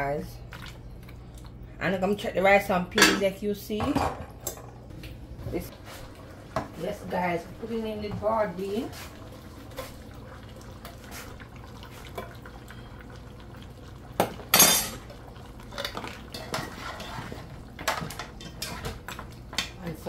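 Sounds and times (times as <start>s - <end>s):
spoon stirring and scraping pot: 15.6s - 19.8s.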